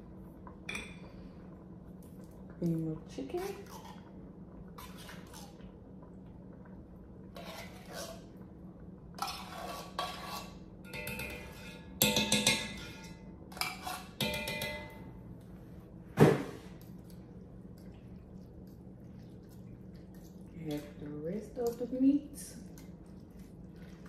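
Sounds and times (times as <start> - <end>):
utensil scraping in metal can: 7.4 - 8.3, 9.2 - 10.6.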